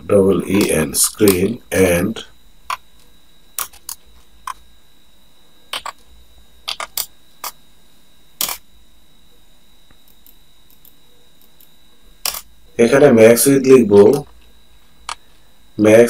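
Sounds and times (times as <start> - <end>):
faint high-pitched tone: 8.0 - 16.0.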